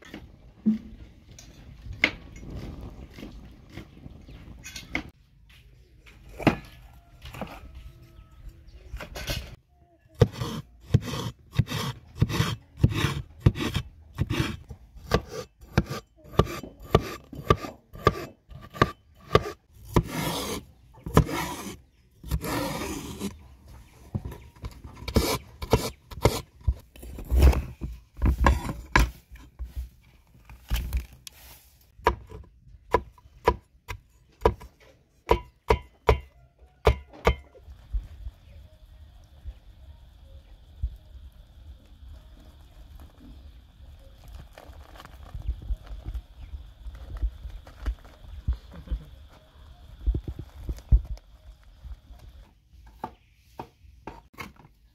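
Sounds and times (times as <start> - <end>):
cleaver rasping strokes: 10.2 - 23.4.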